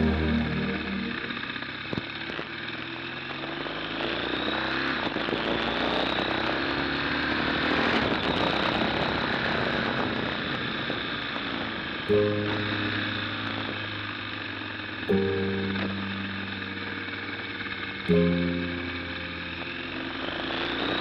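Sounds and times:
motorcycle engine running: 0:07.4 - 0:21.0.

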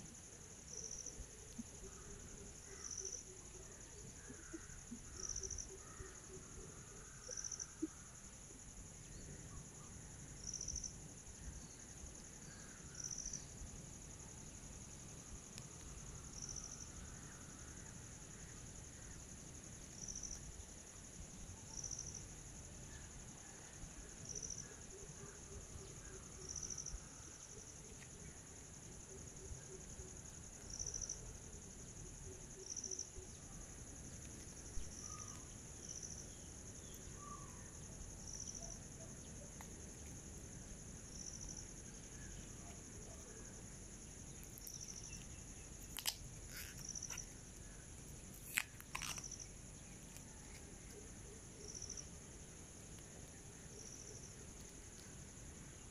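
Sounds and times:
insects chirring: 0:00.0 - 0:55.9
watch buckle clicks: 0:45.8 - 0:47.2, 0:48.4 - 0:49.4.

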